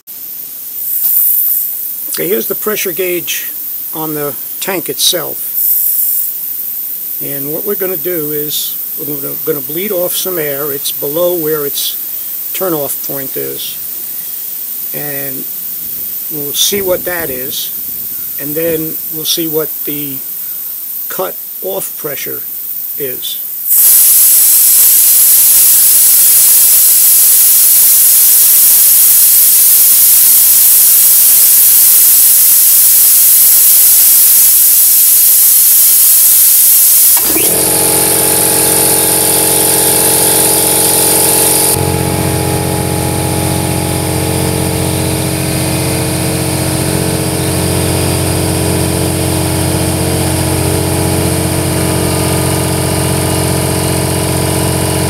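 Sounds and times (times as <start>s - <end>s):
compressed air hissing: 22.5s - 42.4s
air compressor motor running: 23.7s - 55.0s.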